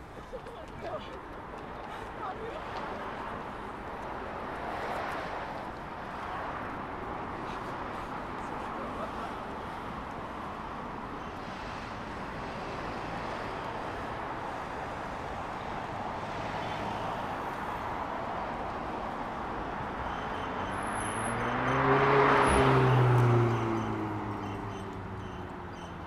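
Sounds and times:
city street traffic noise: 0.0 - 26.0
car passing close: 15.8 - 25.7.

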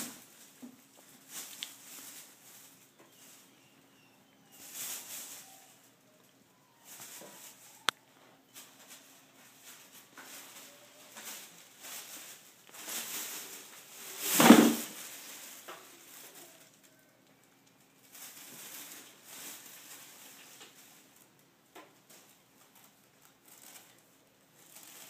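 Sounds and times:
plastic bin liner rustling: 0.0 - 3.6, 8.6 - 16.6.

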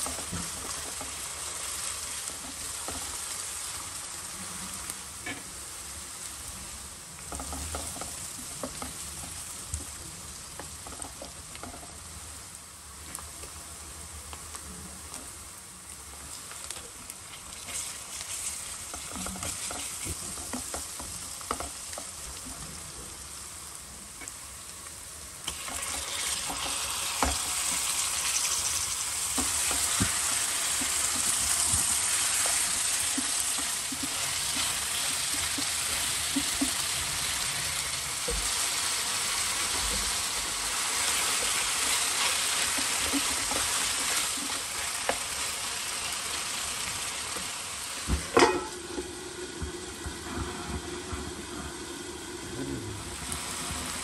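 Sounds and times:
food sizzling in hot oil: 0.0 - 54.0
wooden spatula scraping pan: 17.6 - 22.0.

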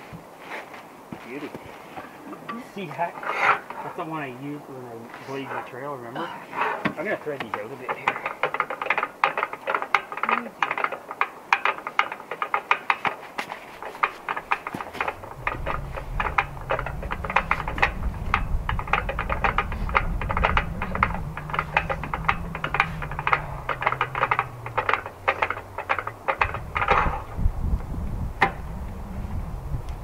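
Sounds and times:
fast irregular clicking: 7.1 - 28.7
small gasoline engine idling: 13.8 - 28.9.

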